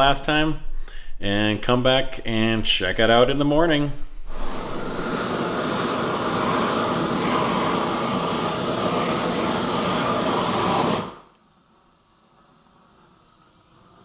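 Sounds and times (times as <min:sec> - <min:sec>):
gas torch flame hissing: 0:04.0 - 0:14.0.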